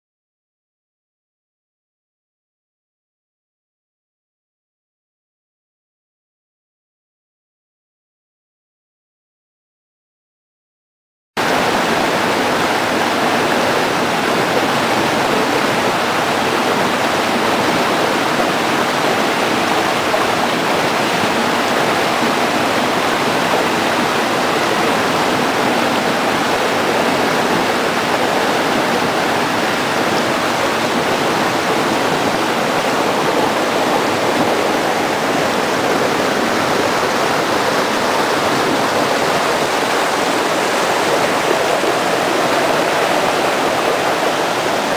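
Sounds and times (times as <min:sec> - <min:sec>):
river rushing over boulders: 0:11.4 - 0:44.9.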